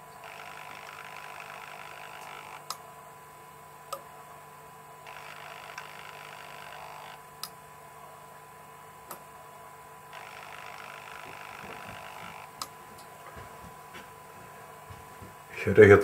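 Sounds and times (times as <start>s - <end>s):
servo whirring: 0.2s - 2.8s, 5.1s - 7.2s, 10.1s - 12.7s
sharp clicks: 0.3s - 2.8s.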